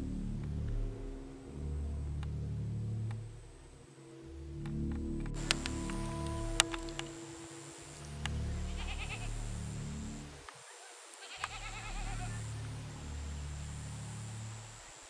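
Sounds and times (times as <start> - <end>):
low steady background tones: 0.0 - 15.0
goat bleating: 8.7 - 9.3, 11.2 - 12.4.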